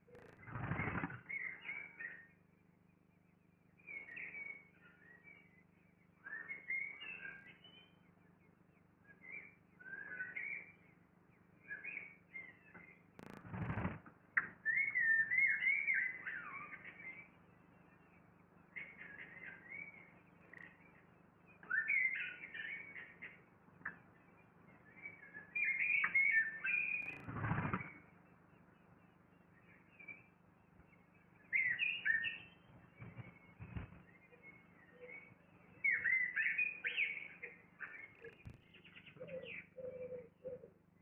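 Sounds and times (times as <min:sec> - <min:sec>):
nestlings chirping: 0:13.2 - 0:14.0.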